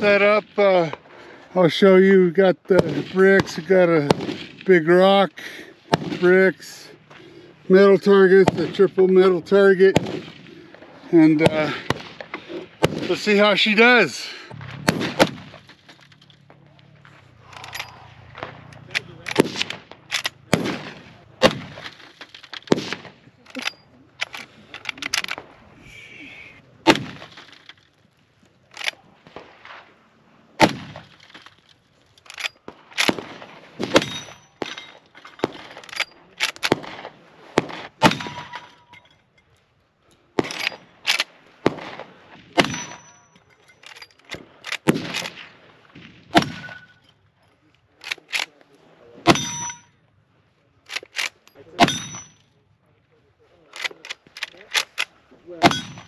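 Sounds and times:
rifle shots: 2.7s - 25.6s, 26.8s - 27.9s, 28.7s - 31.6s, 32.2s - 38.8s, 40.4s - 43.2s, 43.8s - 47.0s, 50.9s - 52.4s, 53.7s - 56.0s
rifle lever action: 18.7s - 20.4s, 23.4s - 25.4s, 31.1s - 33.2s, 40.4s - 41.3s, 50.9s - 51.9s, 53.7s - 55.8s
steel plates ringing: 34.0s - 35.0s, 42.7s - 43.8s, 49.3s - 49.9s, 51.8s - 52.4s, 55.6s - 56.0s.

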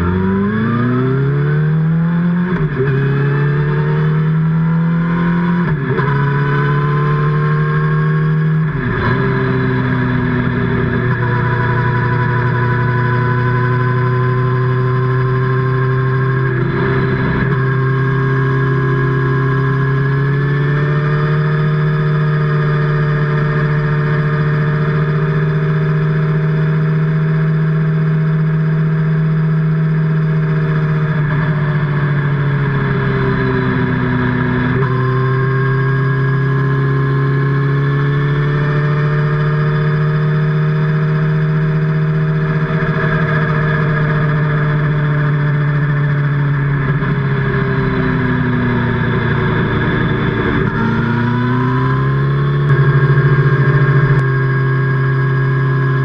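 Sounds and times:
motorcycle engine and exhaust: 0.0s - 56.0s.

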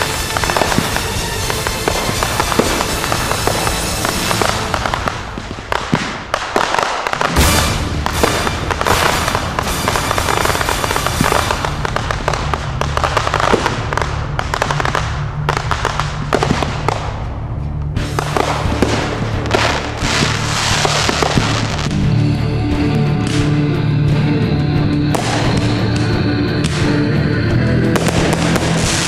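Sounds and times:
music with steady bass: 0.0s - 5.7s, 7.2s - 29.0s
fireworks crackling and popping: 0.0s - 22.1s, 25.0s - 29.0s.

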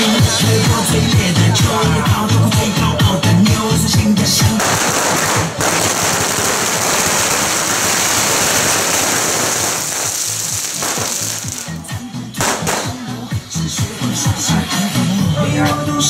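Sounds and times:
firecrackers crackling: 4.2s - 13.5s
drumming: 4.4s - 13.5s.

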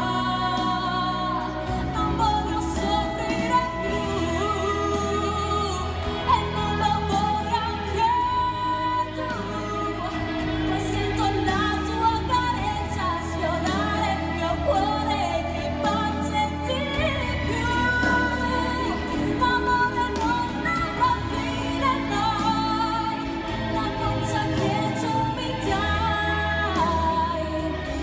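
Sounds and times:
live band accompaniment: 0.0s - 28.0s
woman singing: 0.0s - 28.0s.

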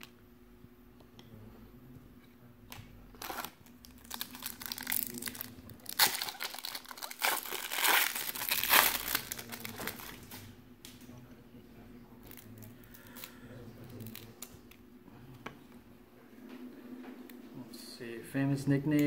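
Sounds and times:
foil wrapper tearing and crinkling: 3.2s - 10.4s.

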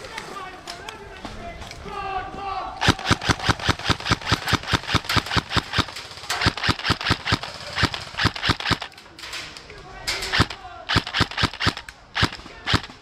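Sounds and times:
airsoft gun shots: 2.8s - 8.9s, 10.3s - 13.0s.

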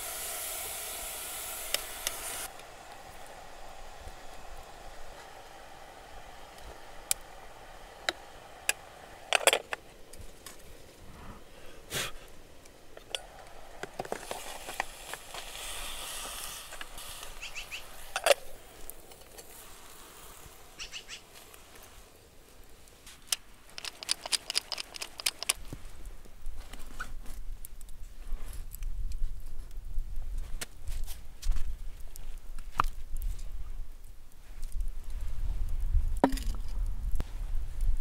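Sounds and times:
sizzling hiss: 0.0s - 26.0s
metal clinks of stones in a can: 23.7s - 25.6s.

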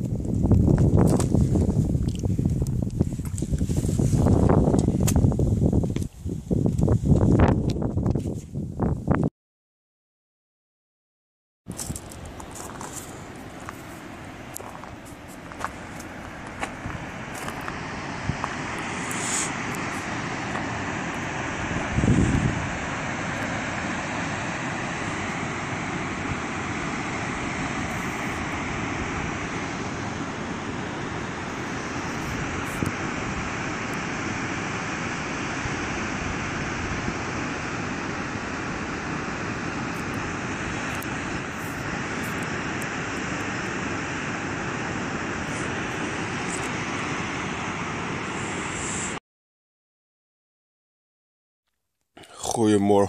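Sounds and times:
waterfall and river rapids rushing: 11.8s - 49.2s.

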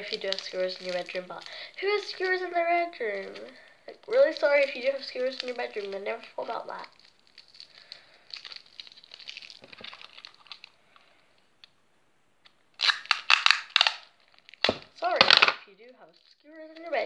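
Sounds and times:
handling rustle: 0.0s - 11.5s
sticky tape ripping off roll: 12.4s - 17.0s.

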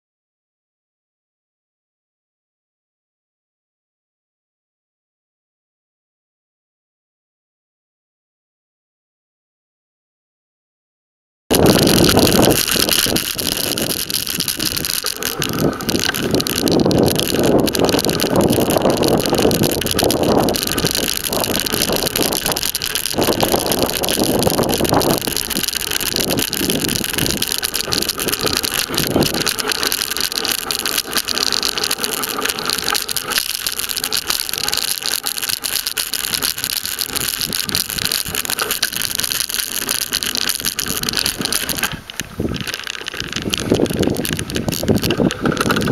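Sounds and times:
wind buffeting microphone: 11.5s - 31.4s, 40.0s - 45.9s
bicycle tyre noise: 11.5s - 45.9s
rattle of bike mount and frame: 11.6s - 45.9s.

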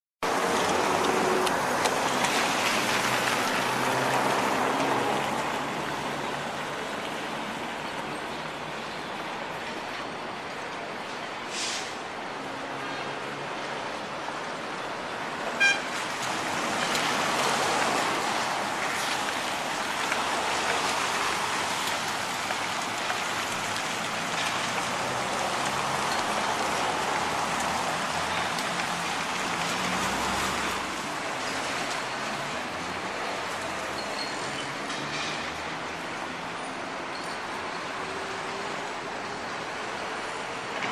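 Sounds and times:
water rushing into storm drain: 0.2s - 9.6s, 13.5s - 34.6s
tyres hissing on wet pavement: 0.3s - 9.7s, 10.9s - 40.8s.

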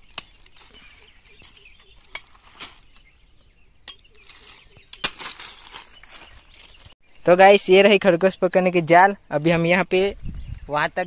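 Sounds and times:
sickle chopping wooden stick: 0.0s - 0.6s, 2.0s - 2.8s, 4.8s - 5.8s.

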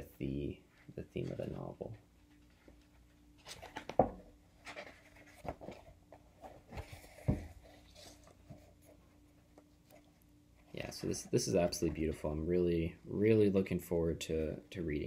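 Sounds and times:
book pages rustling and turning: 1.2s - 10.1s
book knocking: 3.8s - 4.3s, 7.2s - 7.6s.

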